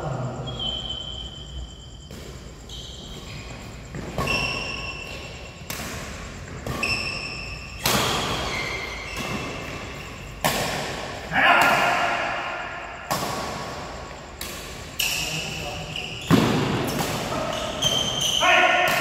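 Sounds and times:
shoes squeaking on court floor: 0.4s - 11.3s, 12.0s - 19.0s
badminton racket hitting shuttlecock: 4.0s - 15.4s.

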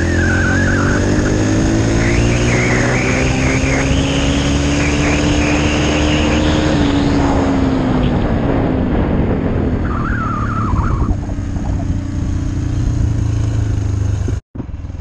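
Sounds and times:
wavering high whine: 0.0s - 7.4s, 9.8s - 12.5s
dirt bike engine running: 0.0s - 15.0s.

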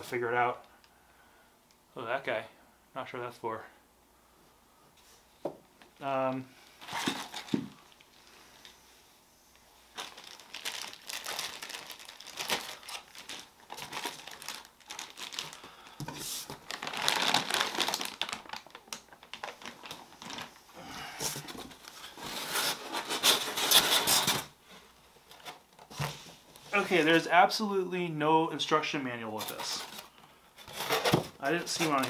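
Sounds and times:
plastic bags crinkling: 6.8s - 8.7s, 9.9s - 24.5s.

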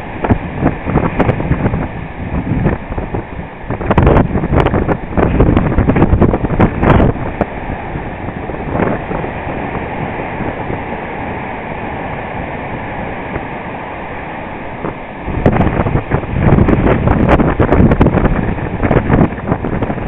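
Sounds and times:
waves breaking against sea wall: 0.0s - 20.0s
wind buffeting microphone: 0.0s - 20.0s.

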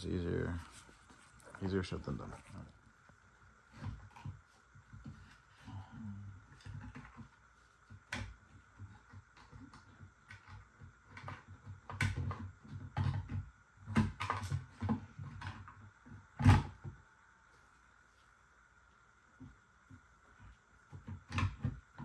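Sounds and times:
plastic parts knocking and clicking: 6.5s - 17.0s.

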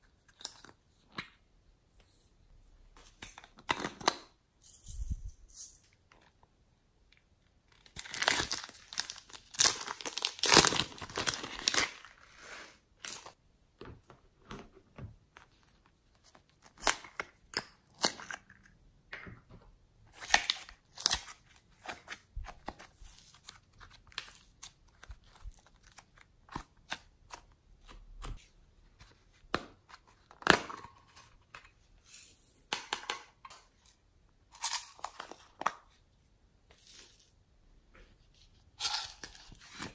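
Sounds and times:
plastic containers crinkling: 7.8s - 12.2s.

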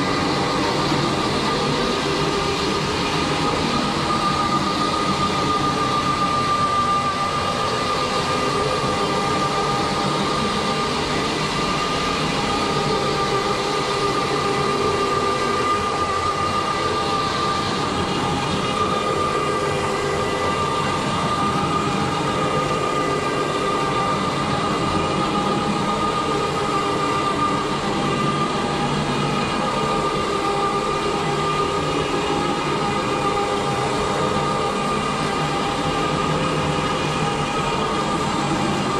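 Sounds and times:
carpet cleaner droning: 0.0s - 38.9s
high whine: 0.0s - 38.9s.

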